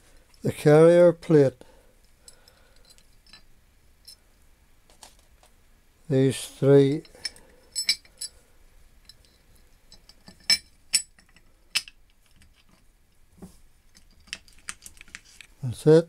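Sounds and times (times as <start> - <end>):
metallic clinks of screws: 7.0 - 8.4, 9.0 - 12.0.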